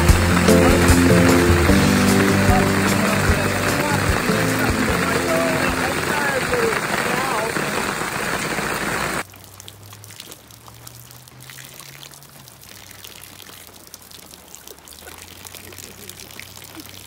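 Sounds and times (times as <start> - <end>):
music: 0.0 - 6.7
rain: 0.0 - 17.0
water trickling into a puddle: 6.8 - 17.0.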